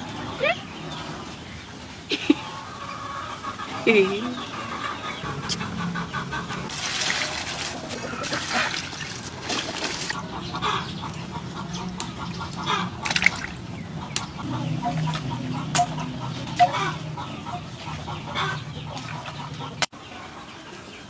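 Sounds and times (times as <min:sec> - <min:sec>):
hens clucking: 0:02.0 - 0:21.0
water pouring into metal basin: 0:06.7 - 0:10.2
water splashing: 0:06.7 - 0:10.6, 0:12.6 - 0:13.6.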